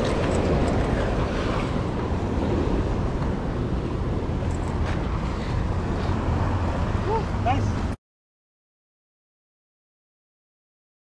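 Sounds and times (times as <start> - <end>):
waves washing against rocks: 0.0 - 4.5
wind rumbling on microphone: 0.0 - 8.0.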